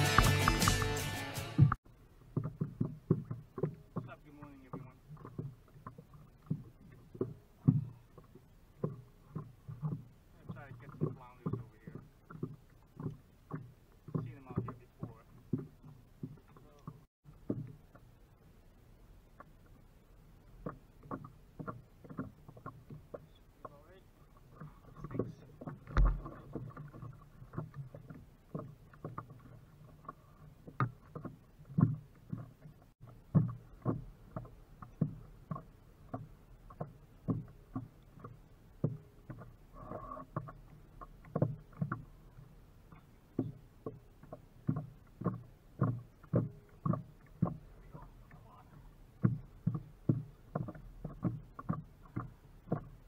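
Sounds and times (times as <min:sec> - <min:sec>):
small waves lapping against board: 0:01.6 - 0:53.0
thump against board: 0:25.9 - 0:26.4.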